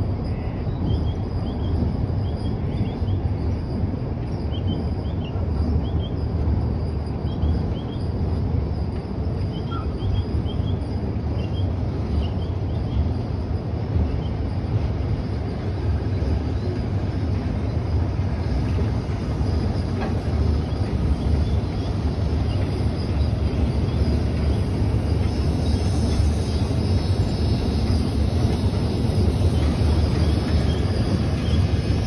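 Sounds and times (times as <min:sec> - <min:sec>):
train rumbling across steel bridge: 0:00.0 - 0:32.0.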